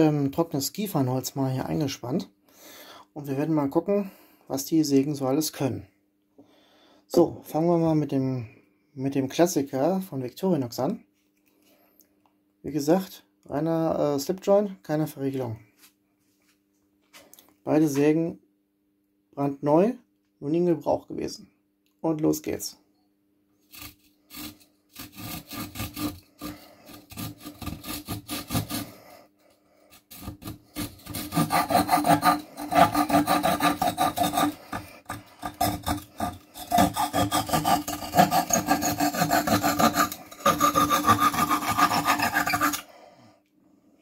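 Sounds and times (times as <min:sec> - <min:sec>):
saw blade cutting wood: 0:23.7 - 0:29.0, 0:29.9 - 0:42.9.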